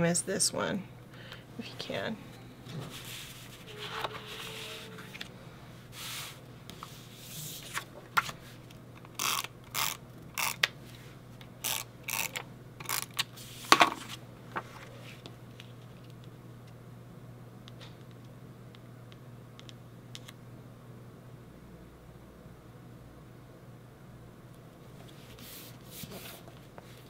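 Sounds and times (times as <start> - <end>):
paper sliding and handling: 2.8 - 8.6
tape runner strokes on paper: 2.8 - 8.6, 25.1 - 27.0.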